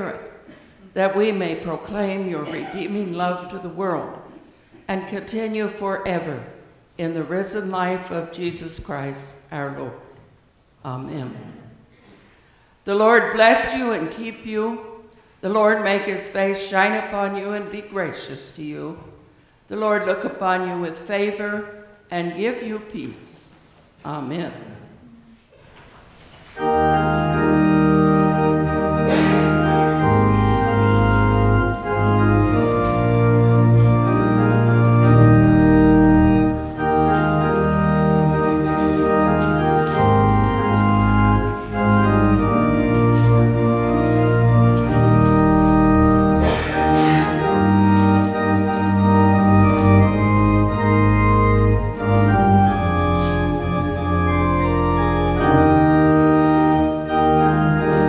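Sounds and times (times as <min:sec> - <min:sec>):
church organ chords: 0:00.0 - 0:04.1, 0:26.6 - 0:58.0
deep organ pedal bass notes: 0:26.6 - 0:58.0.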